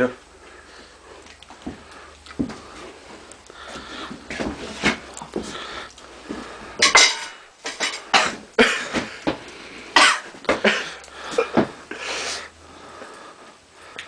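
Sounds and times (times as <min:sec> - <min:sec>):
sharp breathing: 0:00.3 - 0:04.3, 0:10.8 - 0:14.0
people coughing: 0:08.2 - 0:09.0, 0:10.0 - 0:11.7.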